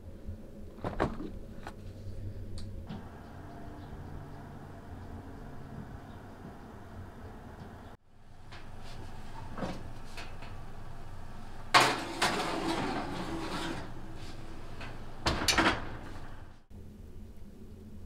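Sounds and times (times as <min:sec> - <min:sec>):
metal pan clanking on oven rack: 0:11.7 - 0:14.0
oven door thudding shut: 0:11.7 - 0:14.1, 0:14.9 - 0:16.4
pan scraping on rack: 0:11.7 - 0:15.0.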